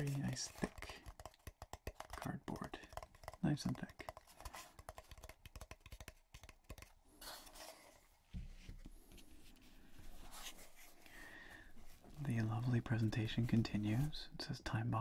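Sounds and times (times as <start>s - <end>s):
fingertips tapping on cardboard: 0.0s - 7.0s
rubbing and sliding on cardboard: 4.0s - 11.1s.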